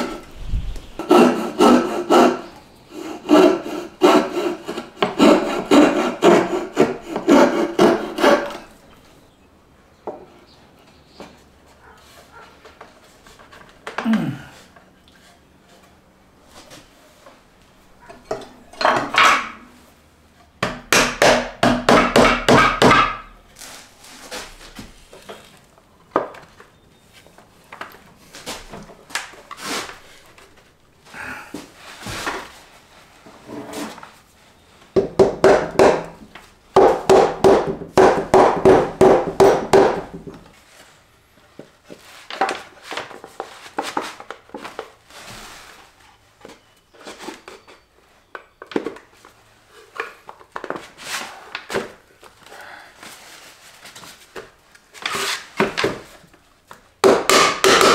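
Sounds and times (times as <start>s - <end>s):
mallet tapping wooden joints: 57.0s - 57.9s.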